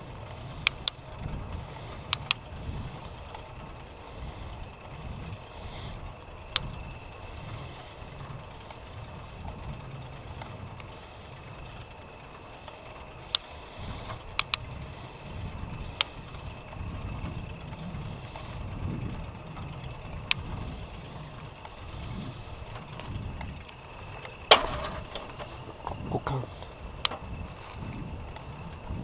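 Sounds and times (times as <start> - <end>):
wind buffeting microphone: 0.0 - 29.0
sharp clicks: 14.2 - 14.6.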